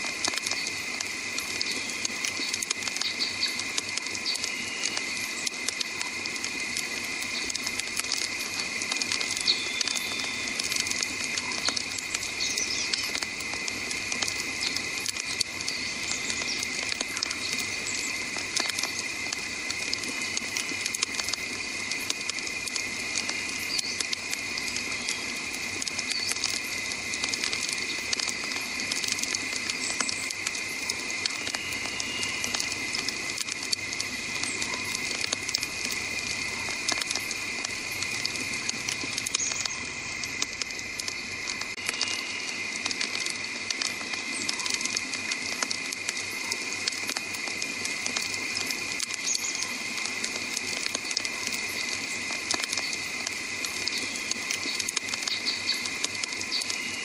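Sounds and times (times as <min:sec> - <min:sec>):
campfire crackling: 0:00.0 - 0:57.0
high-pitched hum: 0:30.2 - 0:42.8.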